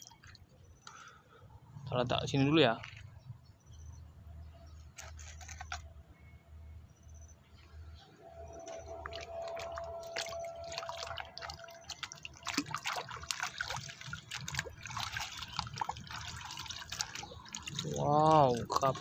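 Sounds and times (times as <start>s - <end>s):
water splashing and dripping: 0.0s - 0.6s, 8.7s - 19.0s.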